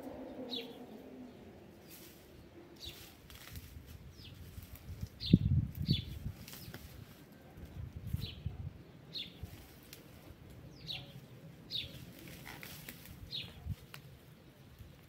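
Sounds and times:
bird chirping: 0:00.0 - 0:03.2, 0:10.6 - 0:12.0, 0:13.3 - 0:13.7
rustling and scuffing: 0:01.8 - 0:07.4.

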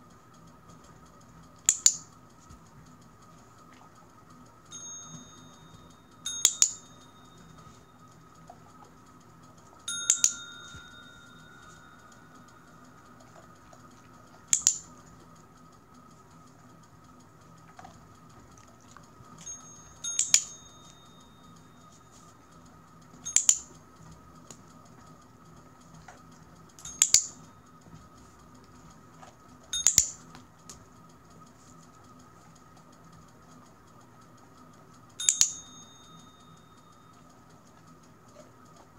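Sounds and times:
desk bell dinging: 0:04.7 - 0:08.0, 0:09.8 - 0:12.8, 0:19.4 - 0:22.2.

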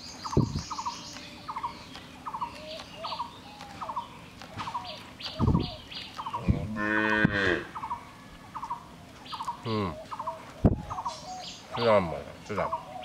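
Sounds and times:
higher bird chirps: 0:00.0 - 0:06.6, 0:07.6 - 0:13.0
bird repeating low call: 0:07.5 - 0:13.0.

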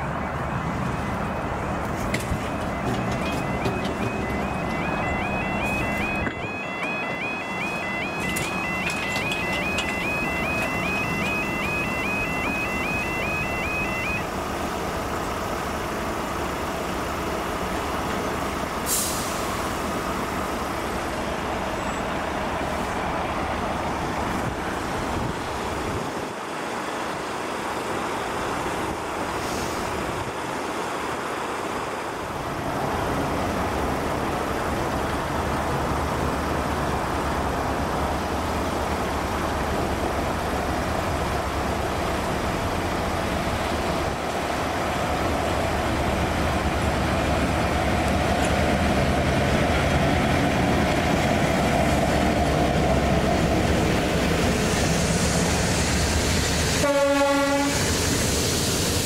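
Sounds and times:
diesel engine running: 0:00.0 - 0:57.5
level crossing alarm warbling: 0:02.2 - 0:14.4
air hisses: 0:57.8 - 0:59.0.

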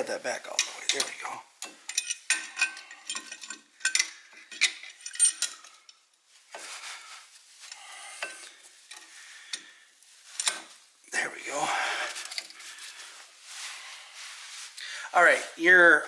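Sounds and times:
tools scraping on metal: 0:00.5 - 0:05.9
metal tools clinking: 0:00.5 - 0:06.8, 0:10.3 - 0:10.8
gloved hands rustling: 0:05.6 - 0:15.8.

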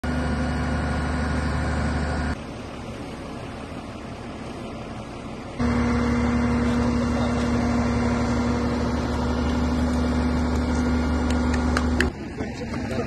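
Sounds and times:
engine and hydraulics humming: 0:00.0 - 0:13.0.

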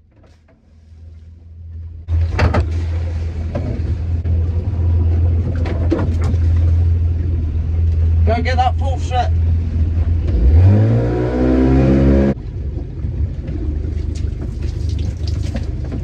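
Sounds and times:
boat engine running: 0:00.0 - 0:16.0.

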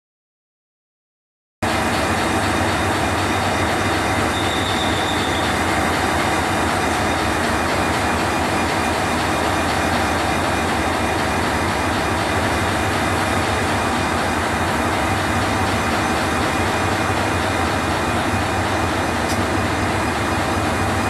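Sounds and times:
diesel locomotive engine: 0:01.6 - 0:21.0
wheels rumbling on rails: 0:01.6 - 0:21.0
high squeal: 0:04.3 - 0:05.7.

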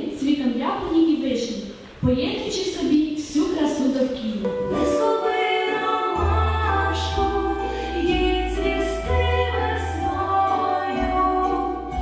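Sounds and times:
women singing: 0:04.6 - 0:12.0
steady bass line: 0:06.2 - 0:12.0.

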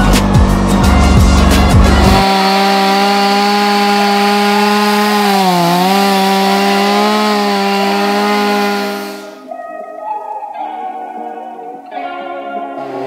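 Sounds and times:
chainsaw cutting through wood: 0:00.0 - 0:09.5.

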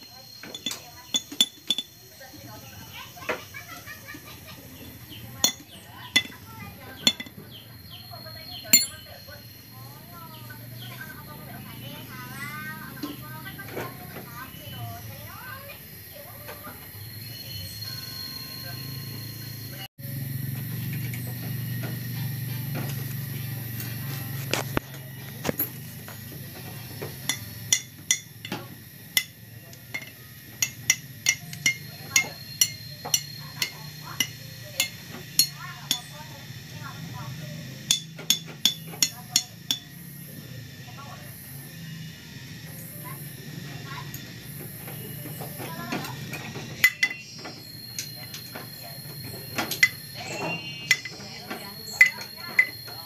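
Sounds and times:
steel tools clinking on metal: 0:00.1 - 0:02.2, 0:04.8 - 0:07.5, 0:08.6 - 0:09.3, 0:25.4 - 0:36.1, 0:37.8 - 0:39.9, 0:45.3 - 0:53.0
metal gear clinking: 0:00.3 - 0:02.0, 0:05.4 - 0:06.4, 0:07.0 - 0:07.4, 0:08.7 - 0:09.1.

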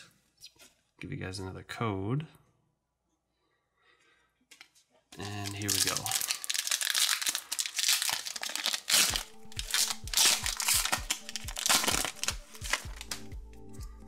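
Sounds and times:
foil wrapper crinkling: 0:05.2 - 0:13.3
music with low beat: 0:09.1 - 0:14.0.

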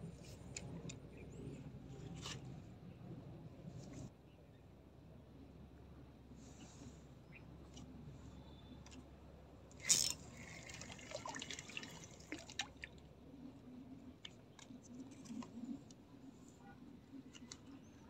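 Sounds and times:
water splashing: 0:09.8 - 0:13.0.

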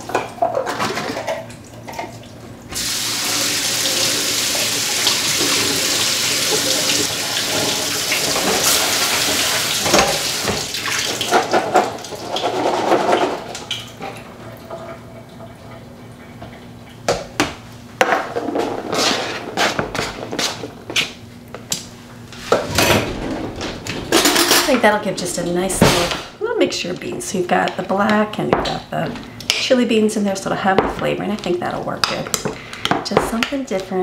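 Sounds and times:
kitchen tap running: 0:01.2 - 0:17.4.

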